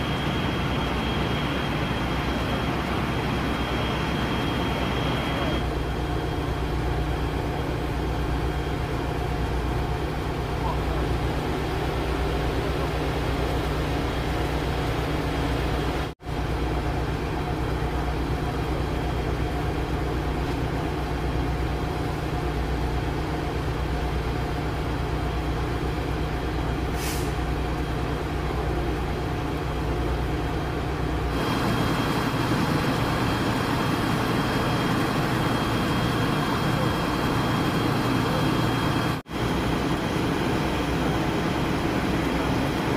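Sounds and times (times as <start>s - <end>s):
diesel engine idling: 0.0s - 42.9s
short hiss: 26.9s - 27.4s.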